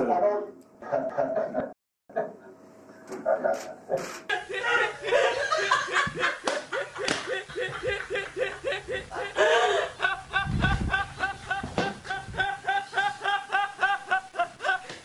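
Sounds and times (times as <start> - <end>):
woman laughing hysterically: 4.3 - 15.0.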